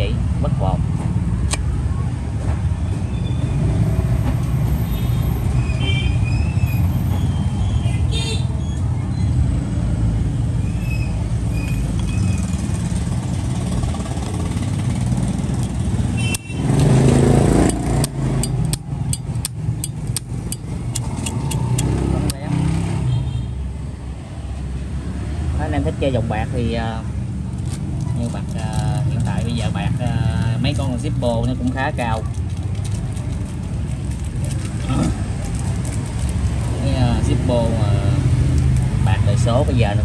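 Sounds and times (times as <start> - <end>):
low rumble of street traffic: 0.0 - 40.0
sharp clicks: 15.6 - 22.4.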